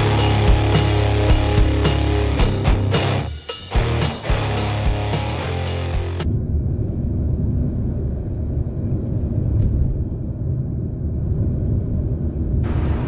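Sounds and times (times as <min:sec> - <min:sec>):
rock music: 0:00.0 - 0:06.3.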